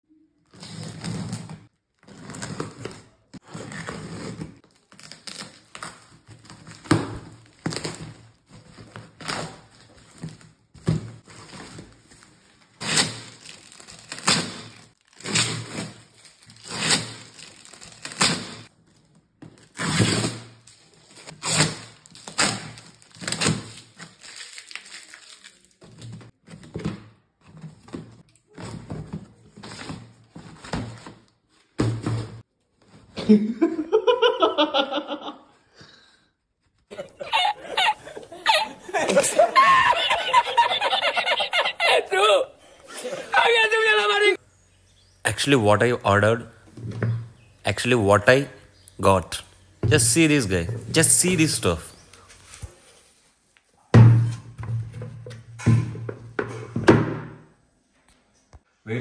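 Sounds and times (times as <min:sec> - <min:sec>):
packing tape ripping: 0:00.5 - 0:10.6, 0:11.3 - 0:26.3.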